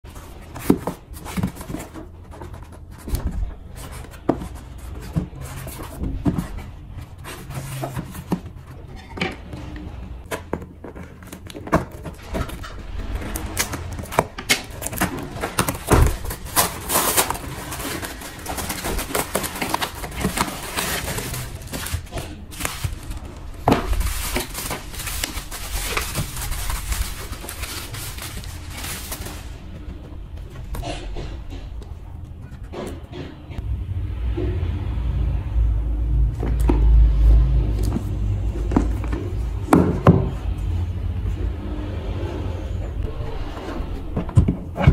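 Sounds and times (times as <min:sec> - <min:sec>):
bubble wrap crinkling: 0:13.0 - 0:29.7
cardboard flaps: 0:13.3 - 0:29.5
tape tearing: 0:13.3 - 0:29.5.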